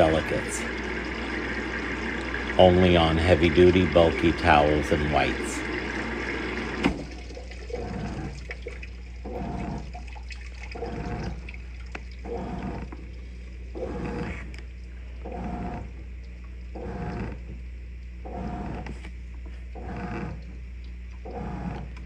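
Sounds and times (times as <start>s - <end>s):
washer water swishing: 0.0s - 16.0s
low electrical hum: 0.0s - 22.0s.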